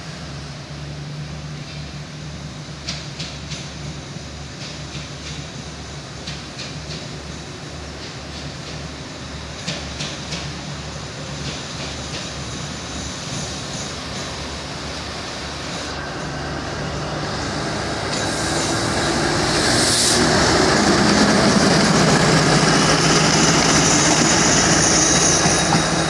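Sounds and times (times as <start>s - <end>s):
locomotive engine rumble: 14.3s - 26.0s.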